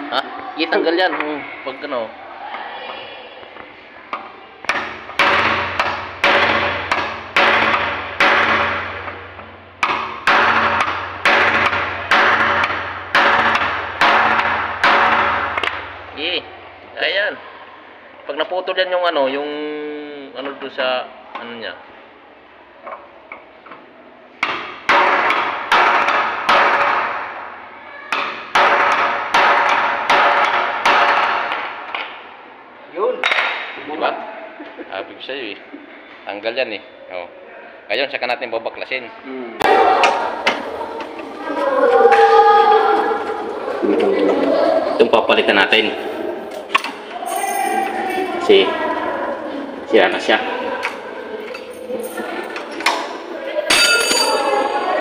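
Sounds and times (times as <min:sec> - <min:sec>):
hammer striking steel chisel: 0:04.6 - 0:09.2, 0:09.8 - 0:15.9, 0:28.1 - 0:31.6.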